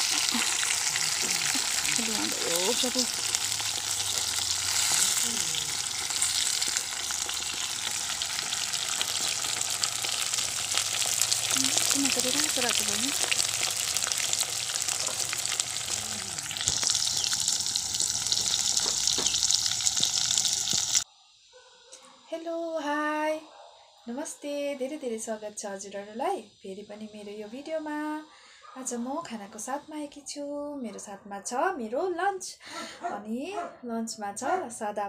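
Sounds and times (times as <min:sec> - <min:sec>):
fish sizzling in hot oil: 0:00.0 - 0:21.0.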